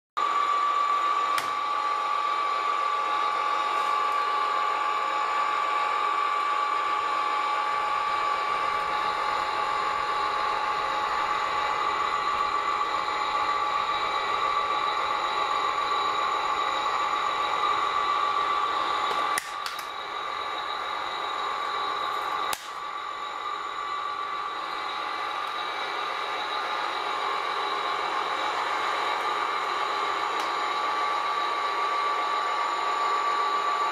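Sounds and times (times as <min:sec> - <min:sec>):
electric motors whining: 0:00.2 - 0:33.9.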